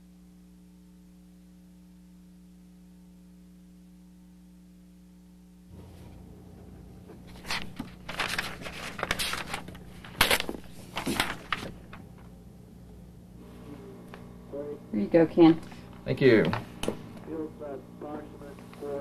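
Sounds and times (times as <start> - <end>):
steady low hum: 0.0 - 19.0
paper sheets rustling: 7.1 - 12.3.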